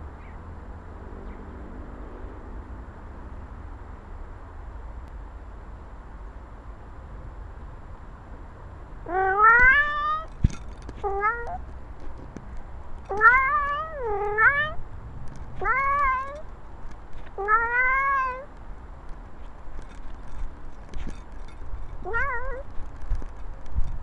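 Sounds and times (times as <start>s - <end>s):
cat meowing loudly: 9.1s - 10.3s, 11.0s - 11.6s, 13.1s - 14.8s, 15.6s - 16.4s, 17.4s - 18.5s, 22.0s - 22.7s.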